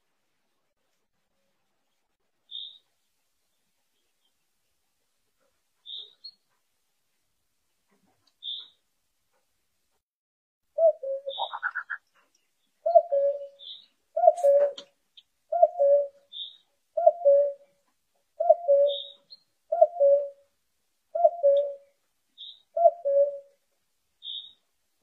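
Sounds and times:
cuckoo calling: 10.8s - 12.2s, 12.8s - 17.7s, 18.4s - 20.4s, 21.1s - 23.6s.

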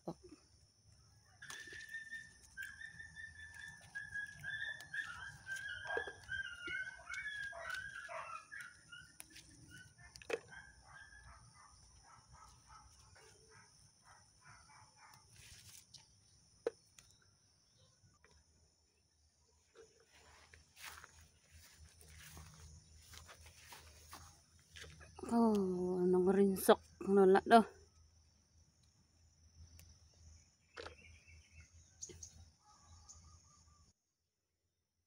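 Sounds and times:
animal whining call: 1.4s - 11.4s.

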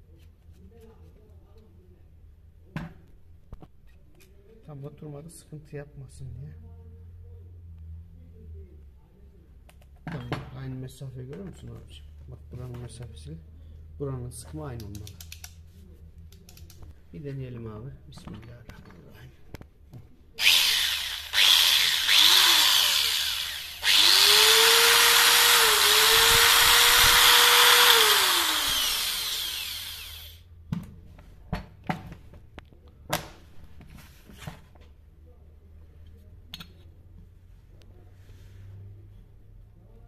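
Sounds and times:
angle grinder whining: 20.4s - 30.4s.

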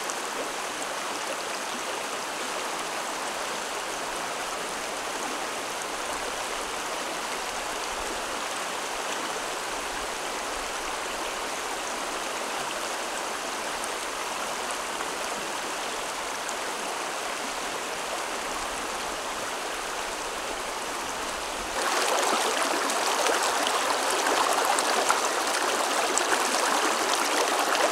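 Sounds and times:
stream flowing over stones: 0.0s - 27.9s.

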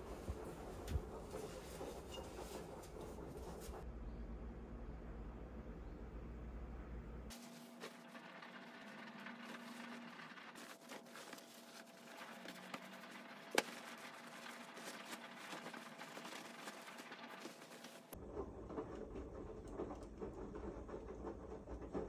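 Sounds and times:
damp laundry rustling: 10.6s - 18.2s.

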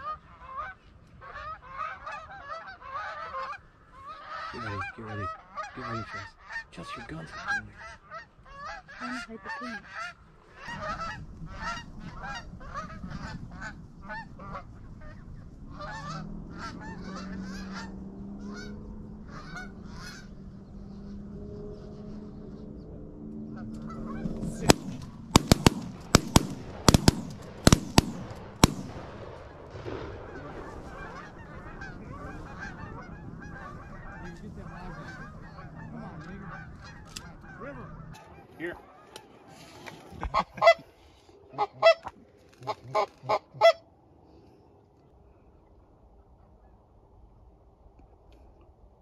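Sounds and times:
geese honking: 0.0s - 22.8s, 23.5s - 43.9s
shotgun shots: 24.4s - 31.4s.

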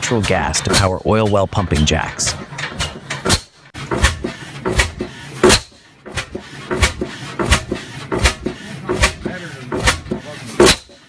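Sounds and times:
sharp clacks and knocks: 0.0s - 11.0s
gas engine running slowly: 3.8s - 11.0s.

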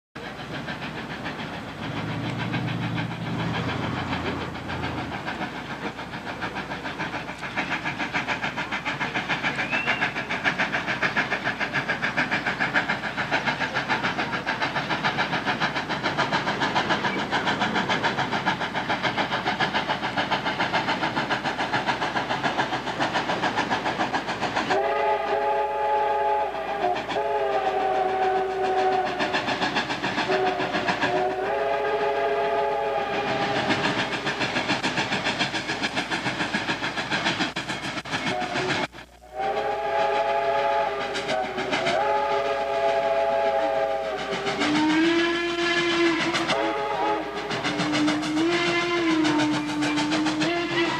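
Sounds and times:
steam locomotive exhaust chatter: 0.2s - 50.9s
chime steam whistle blasts: 24.7s - 29.3s, 30.3s - 34.3s, 38.3s - 50.9s.

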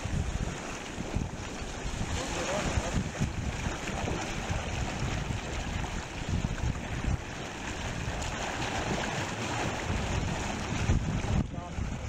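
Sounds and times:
water rushing and churning: 0.0s - 12.0s
wind buffeting microphone: 0.0s - 12.0s.

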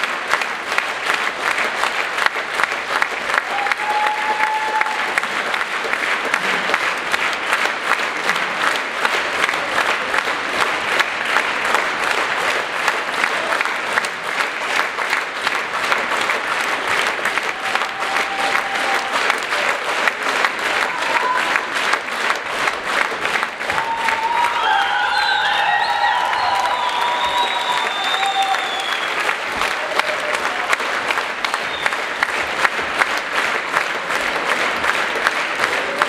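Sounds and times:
large audience applauding: 0.0s - 36.0s.

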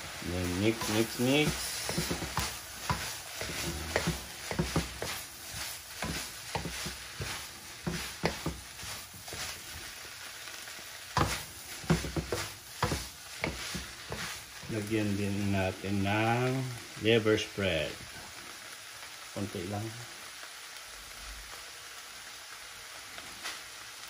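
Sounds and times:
wooden spatula scraping a pan: 0.0s - 10.2s, 11.1s - 15.5s
meat sizzling in a frying pan: 0.0s - 24.0s.

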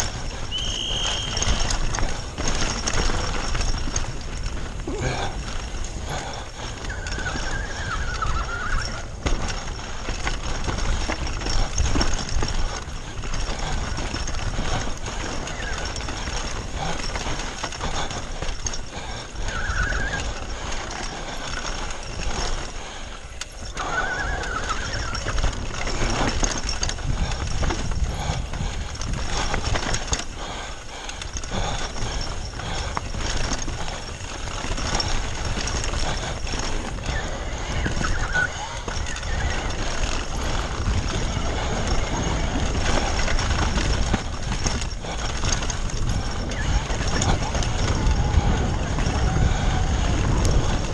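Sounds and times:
bike rattling over rough trail: 0.0s - 50.9s
wind rumble on microphone: 0.0s - 50.9s
brake squeals: 0.5s - 1.9s, 6.8s - 9.2s, 19.4s - 20.4s, 23.5s - 26.2s, 37.0s - 40.0s.

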